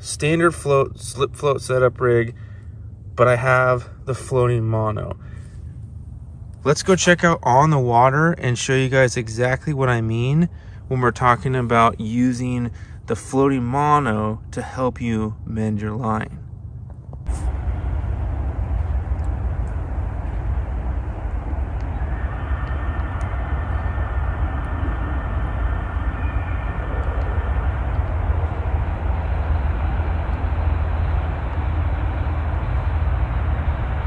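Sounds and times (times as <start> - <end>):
wind buffeting microphone: 16.5 - 34.0.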